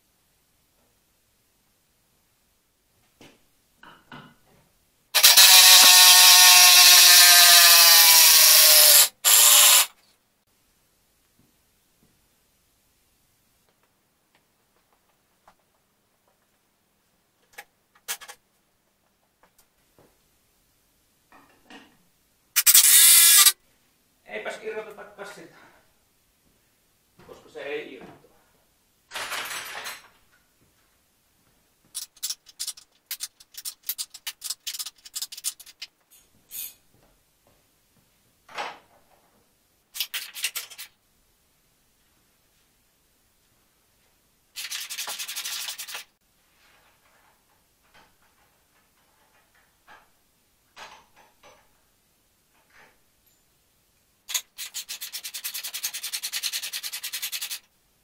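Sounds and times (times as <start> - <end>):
socket ratchet clicking: 22.6 - 23.6.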